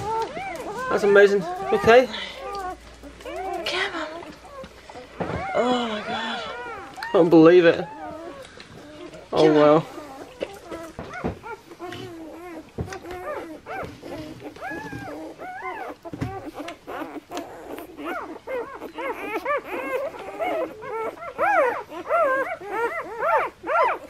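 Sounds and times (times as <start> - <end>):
puppies squeaking and whimpering: 0.0 - 24.0.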